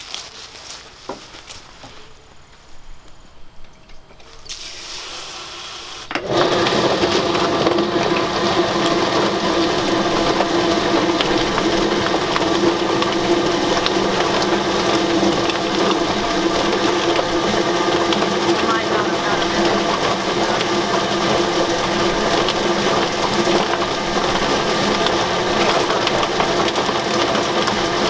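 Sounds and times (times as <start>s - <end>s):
electric motor humming: 2.1s - 28.0s
water spray hissing: 4.4s - 6.1s, 9.4s - 26.9s.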